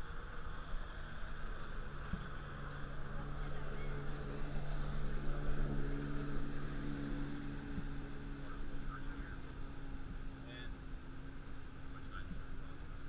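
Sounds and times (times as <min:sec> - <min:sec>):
boat engine hum: 0:00.0 - 0:13.0
water noise: 0:00.0 - 0:13.0.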